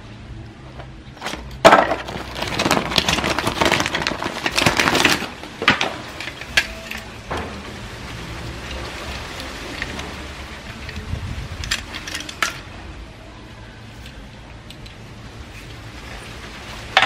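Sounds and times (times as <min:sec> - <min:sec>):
plastic toys rustling and clattering: 0:00.8 - 0:12.9.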